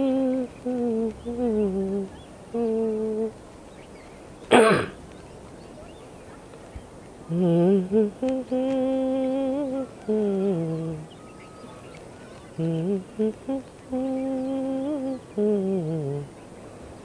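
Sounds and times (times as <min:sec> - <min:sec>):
person humming: 0:00.0 - 0:03.4, 0:07.3 - 0:11.2, 0:12.6 - 0:16.3.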